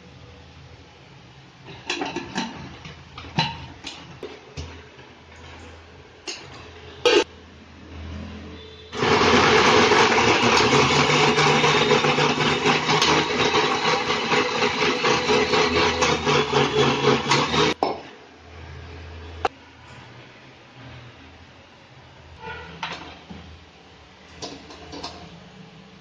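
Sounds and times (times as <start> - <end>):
mixer grinder running: 9.0 - 17.8.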